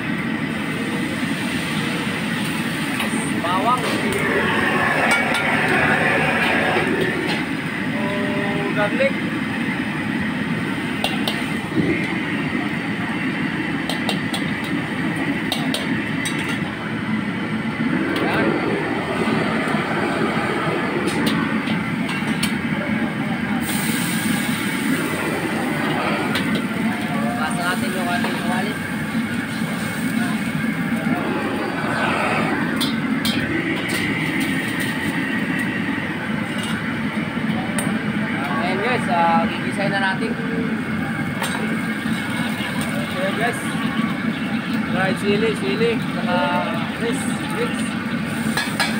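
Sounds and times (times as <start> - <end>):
low roar of wok burner: 0.0 - 48.9
stove rumble: 0.6 - 38.0.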